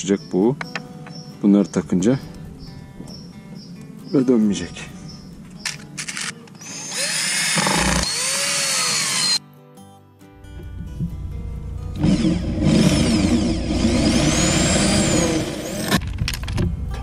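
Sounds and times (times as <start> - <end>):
corded drill motor whine: 6.6 - 9.4, 12.0 - 16.0
cordless drill boring into steel: 6.6 - 9.4, 12.0 - 16.0.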